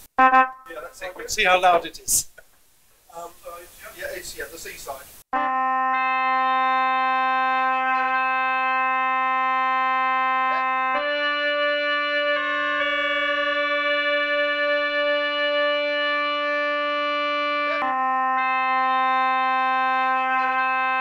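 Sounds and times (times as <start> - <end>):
pipe organ sustained note: 5.4 - 21.0.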